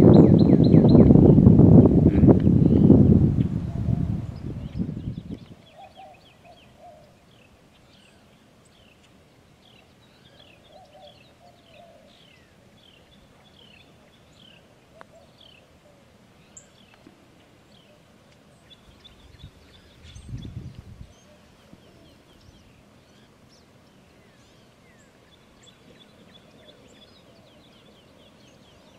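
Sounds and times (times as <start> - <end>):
low rumble: 0.0 - 5.5
birds chirping: 0.0 - 28.9
low pulsed bird call: 2.4 - 16.9.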